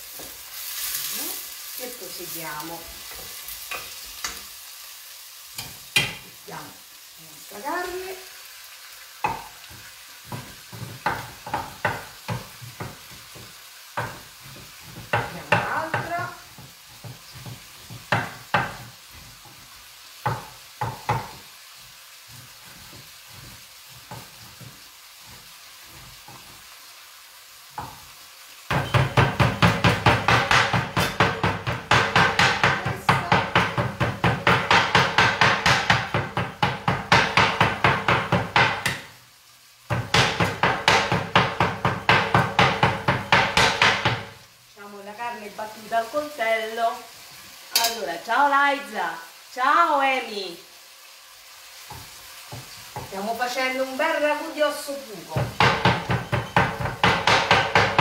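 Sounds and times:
knife chopping on wooden board: 9.2 - 19.6, 20.2 - 21.4, 28.7 - 39.1, 39.9 - 44.4, 55.4 - 58.0.

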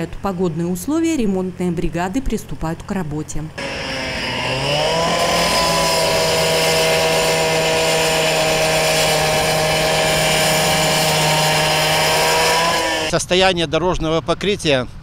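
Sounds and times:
cut-off saw cutting asphalt: 3.6 - 13.2.

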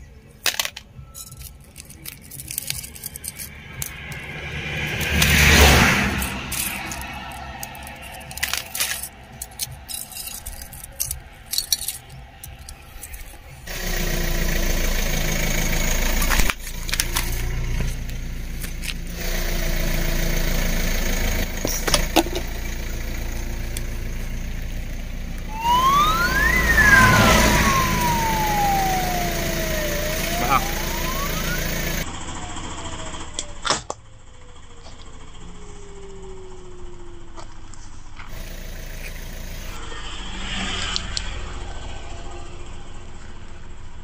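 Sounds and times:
coins clinking onto plastic plate: 0.5 - 4.2, 6.1 - 13.4
vehicle engine running: 1.2 - 44.0
siren-like whine: 2.5 - 22.0, 22.6 - 43.3.

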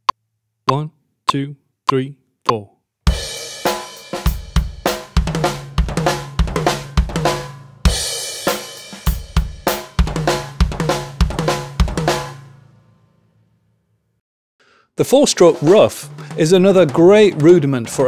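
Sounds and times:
drum kit playing: 3.1 - 12.7, 15.1 - 18.0.

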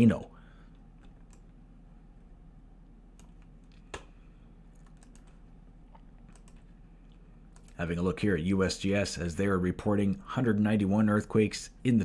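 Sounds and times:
faint low electrical hum: 0.0 - 12.0
computer keyboard clicks: 4.7 - 5.4, 6.3 - 6.7.

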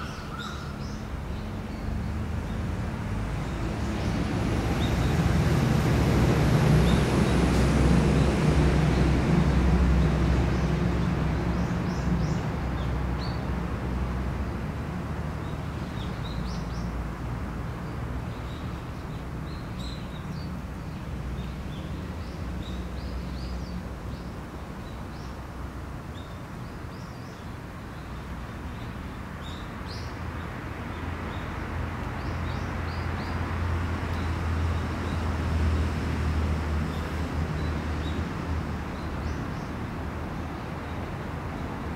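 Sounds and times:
small birds chirping: 0.0 - 2.6.

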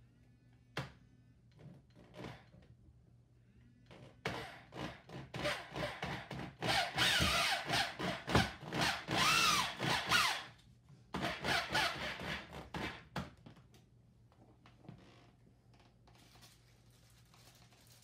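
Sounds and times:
electric drill drilling into wood: 6.6 - 10.5, 11.2 - 12.4.

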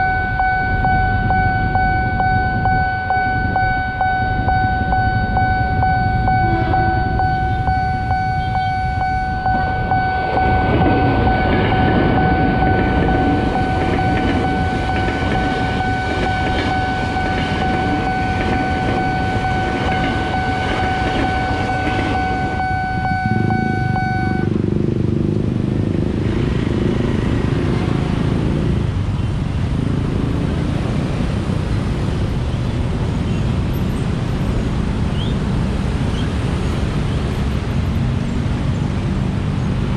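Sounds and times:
level crossing alarm: 0.0 - 24.5
electric train passing: 0.0 - 29.0
motorcycles and cars passing: 0.0 - 39.9.

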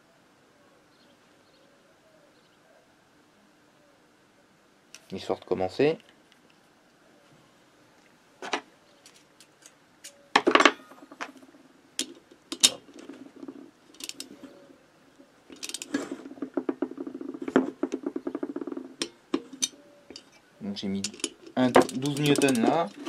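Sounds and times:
metal clicks and knocks: 12.0 - 14.3, 15.5 - 23.0
ratchet wrench clicking: 15.6 - 15.9.

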